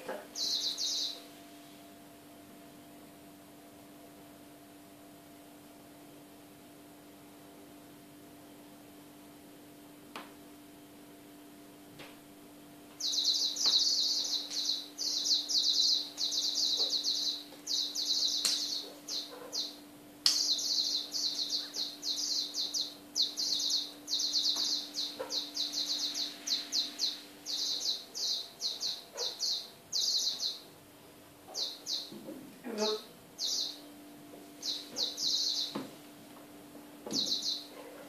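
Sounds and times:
high-pitched bird-like chirping: 0.3s - 1.2s, 13.0s - 30.6s, 31.5s - 32.1s, 32.7s - 33.8s, 34.6s - 35.8s, 37.1s - 37.7s.

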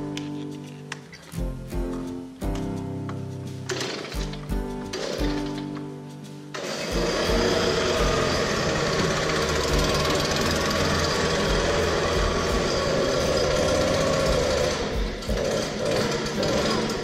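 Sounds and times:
leaf blower running: 6.6s - 17.0s.

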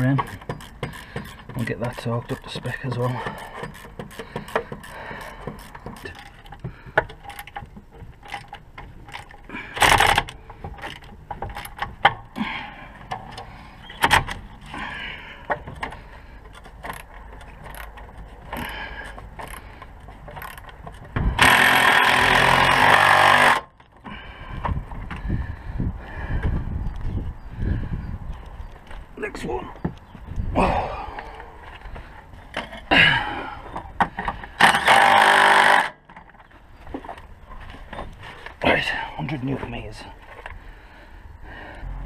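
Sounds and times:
ratchet clicking: 0.0s - 2.6s.

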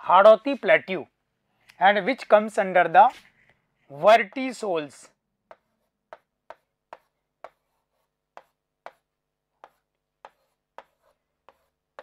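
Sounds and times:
marker writing on whiteboard: 3.0s - 12.0s.

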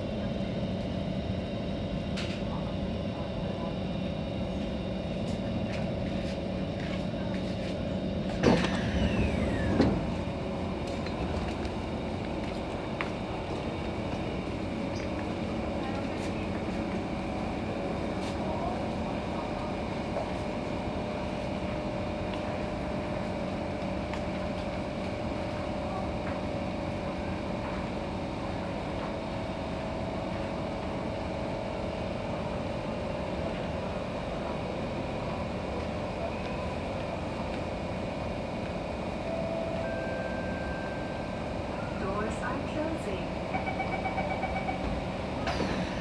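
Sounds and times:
train hum and hiss: 0.0s - 46.0s
high steady tone: 39.2s - 41.9s.

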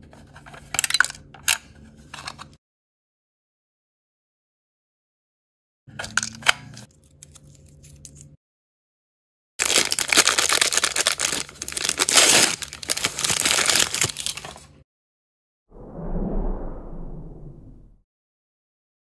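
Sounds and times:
plastic wrapper crinkling and tearing: 9.6s - 14.7s.

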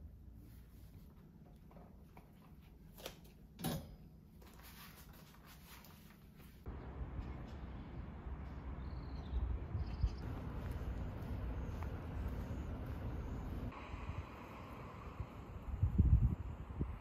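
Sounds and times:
low outdoor rumble: 6.7s - 17.0s.

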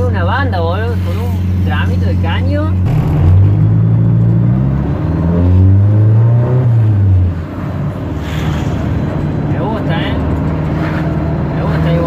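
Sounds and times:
car engine accelerating: 2.6s - 8.2s.

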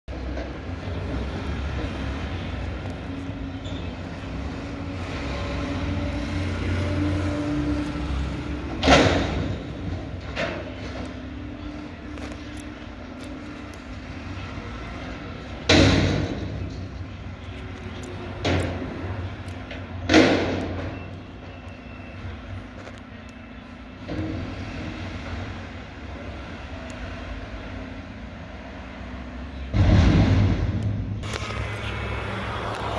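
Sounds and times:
diesel engine drone: 0.1s - 32.9s
sudden loud noise: 29.7s - 32.9s
sharp loud burst: 29.8s - 32.3s.

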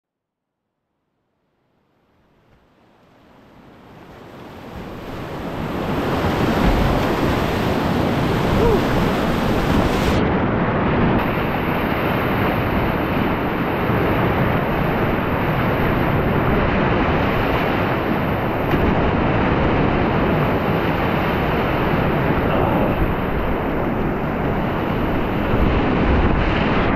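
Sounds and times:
river rapids rushing: 4.5s - 10.2s.

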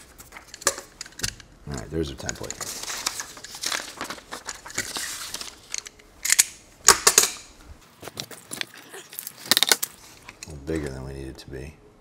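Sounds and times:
paper moved about on mat: 2.6s - 5.8s.

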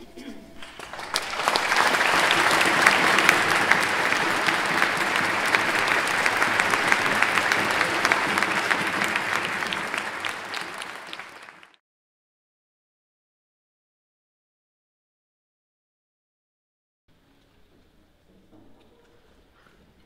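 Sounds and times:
audience applauding: 0.6s - 11.8s.

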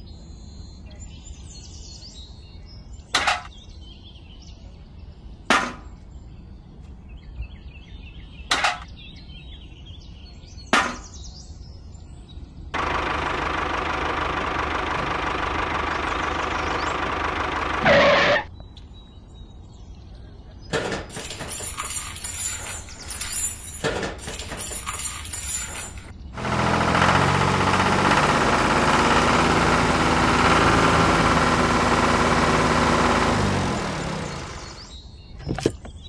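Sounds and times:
rushing whirr: 12.8s - 18.5s, 24.3s - 35.9s.

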